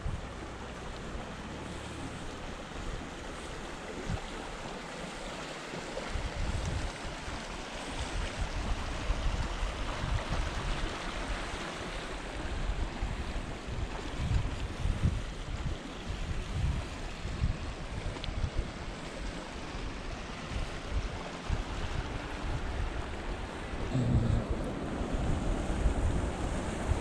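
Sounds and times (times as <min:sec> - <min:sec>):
wind buffeting microphone: 0:06.0 - 0:27.0.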